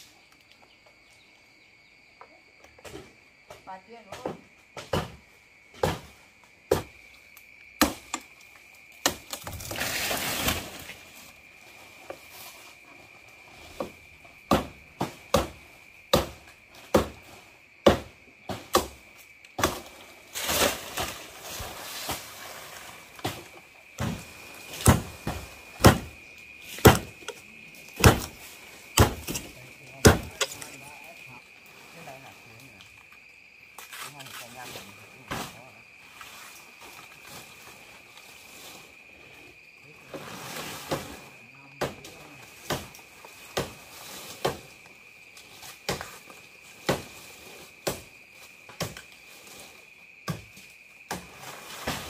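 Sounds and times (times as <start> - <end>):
high insect trill: 0.0 - 52.0
chopping blows: 23.2 - 28.4, 29.0 - 30.8.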